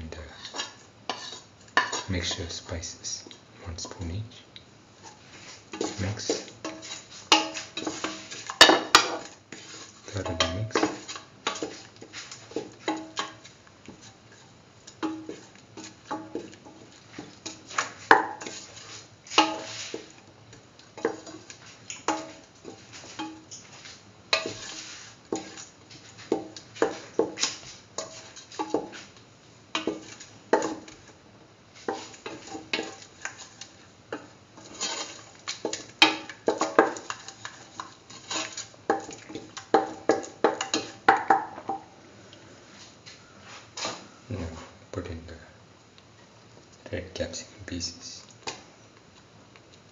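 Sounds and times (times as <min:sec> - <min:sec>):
utensil scraping metal pan: 0:00.4 - 0:02.5, 0:05.4 - 0:13.4, 0:17.4 - 0:20.1, 0:24.4 - 0:29.0, 0:31.8 - 0:41.0.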